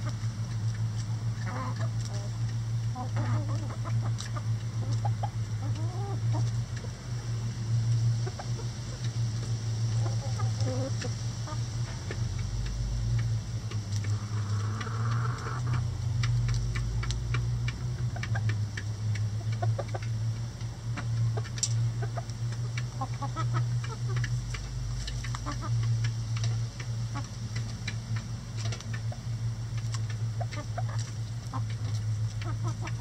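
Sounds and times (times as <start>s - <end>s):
chickens clucking: 0.0s - 33.0s
steady low hum: 0.0s - 33.0s
beaks tapping on cabbage leaves: 11.8s - 33.0s.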